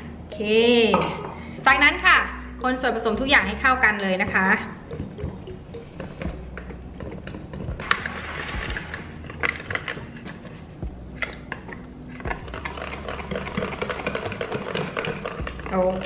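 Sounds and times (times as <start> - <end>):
whisk clicking against bucket: 4.2 - 16.0
batter swishing: 7.7 - 10.3.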